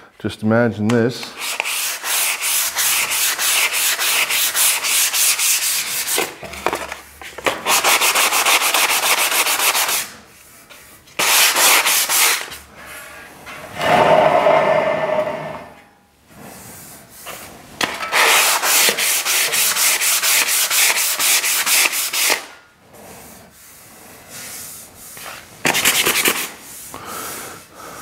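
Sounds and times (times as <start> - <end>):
sandpaper rubbing on metal rim: 1.4 - 6.4, 7.6 - 10.2, 11.2 - 12.5, 18.1 - 22.5, 24.5 - 26.8.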